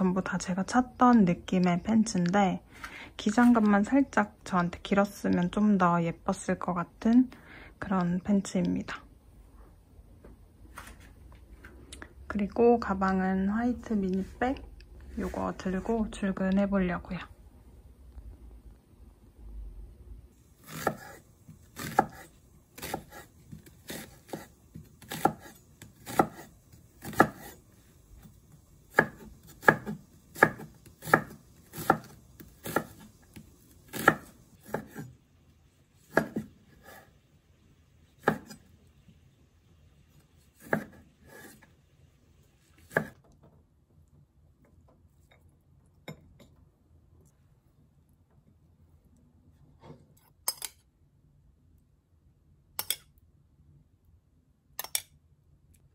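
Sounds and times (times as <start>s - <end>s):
knife chopping onion on board: 20.6s - 27.6s, 28.9s - 35.1s, 36.1s - 37.1s, 38.2s - 38.6s, 40.6s - 41.6s, 42.8s - 43.2s.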